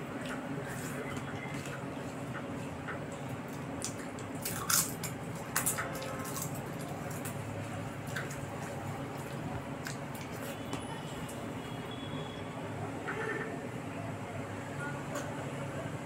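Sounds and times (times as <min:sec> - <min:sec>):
wet squishing and chewing: 0:00.0 - 0:11.7.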